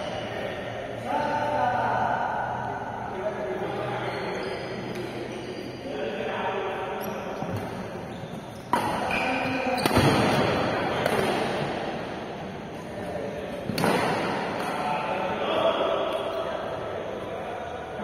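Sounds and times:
players' voices: 0:00.0 - 0:18.0
rackets hitting shuttlecock: 0:07.4 - 0:11.9, 0:12.8 - 0:15.2.

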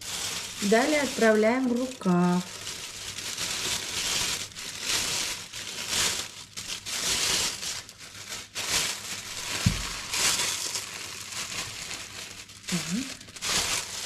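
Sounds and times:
plastic sleeve crinkling: 0:00.0 - 0:14.0
dull thump: 0:09.6 - 0:09.9.

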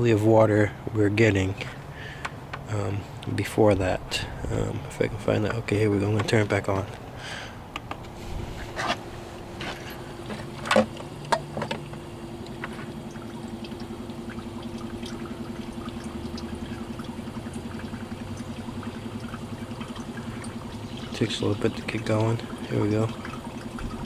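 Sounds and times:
electric pump humming: 0:00.0 - 0:24.0
water trickling into a cup: 0:09.3 - 0:24.0.

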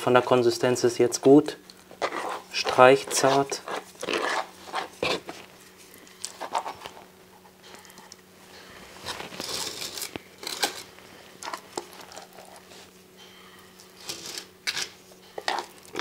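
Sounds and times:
plaster scraping and smearing: 0:02.0 - 0:05.4.

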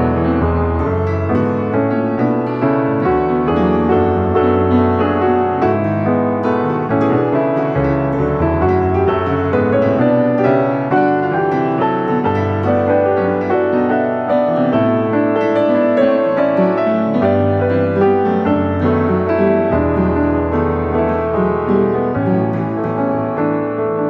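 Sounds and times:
keyboard melody: 0:00.0 - 0:24.0.

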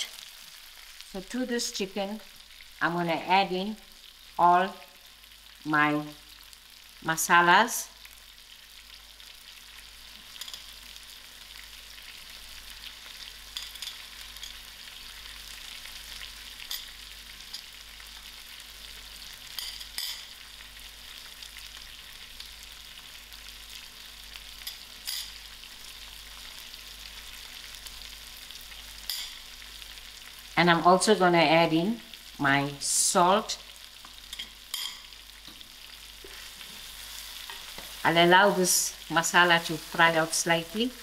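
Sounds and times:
chicken sizzling in hot oil: 0:00.0 - 0:41.0
metal spoons clinking: 0:10.4 - 0:10.6, 0:34.3 - 0:35.0.

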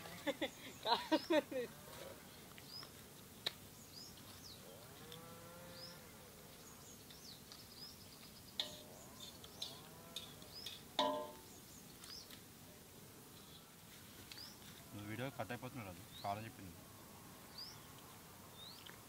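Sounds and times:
birds chirping: 0:00.2 - 0:01.6, 0:02.3 - 0:04.8, 0:05.5 - 0:12.4, 0:14.3 - 0:16.7, 0:17.4 - 0:19.0.

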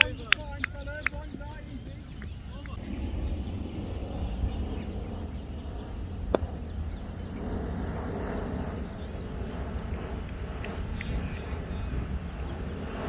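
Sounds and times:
low outdoor rumble: 0:00.0 - 0:13.0
sharp crack: 0:06.3 - 0:06.6.

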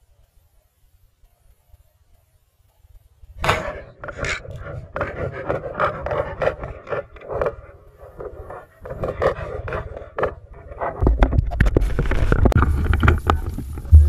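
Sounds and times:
gear rubbing against camera: 0:03.4 - 0:14.0.

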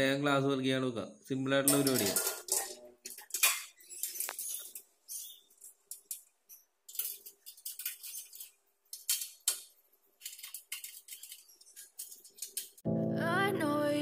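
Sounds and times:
metal fittings clinking: 0:01.7 - 0:12.8.

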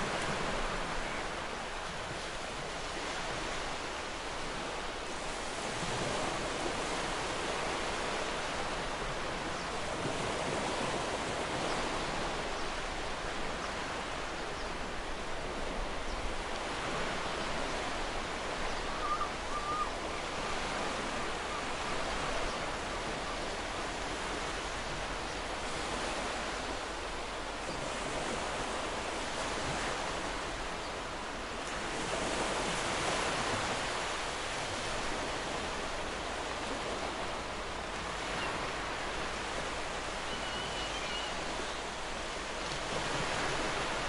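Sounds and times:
ocean waves washing on shore: 0:00.0 - 0:44.0
faint bird call: 0:18.7 - 0:20.4, 0:40.2 - 0:41.5.

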